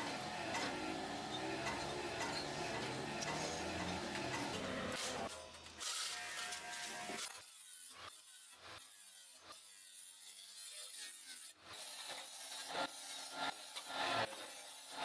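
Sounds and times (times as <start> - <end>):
iron discs scraping: 0.0 - 5.4.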